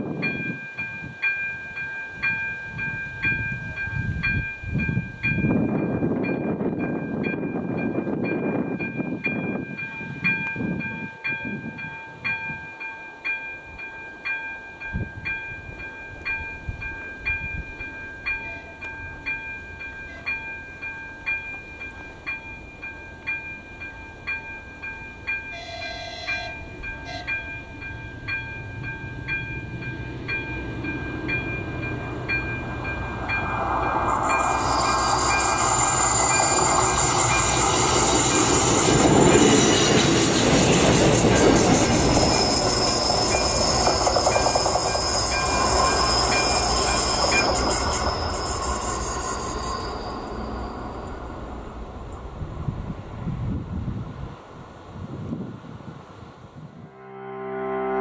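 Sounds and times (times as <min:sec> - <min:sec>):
diesel railcar rumble and wheel noise: 0:00.0 - 0:56.9
train horn blasts: 0:25.5 - 0:27.6, 0:56.8 - 0:58.0.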